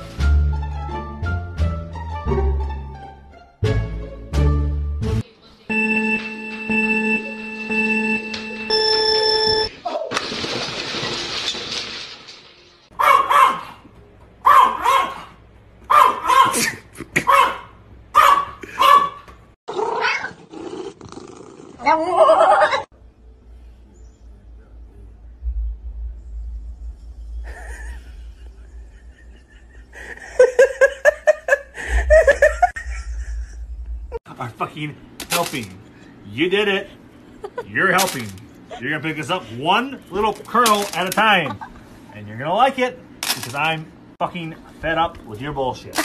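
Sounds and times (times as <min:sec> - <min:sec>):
small dog barking: 0:13.0 - 0:13.8, 0:14.4 - 0:15.3, 0:15.9 - 0:16.6, 0:17.3 - 0:19.2
person laughing: 0:16.5 - 0:17.4, 0:27.4 - 0:33.9, 0:37.4 - 0:37.8, 0:41.4 - 0:41.8.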